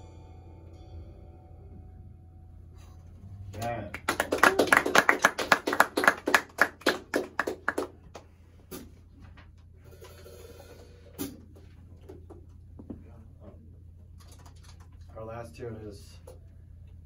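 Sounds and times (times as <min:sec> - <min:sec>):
audience applauding: 0:03.5 - 0:08.3.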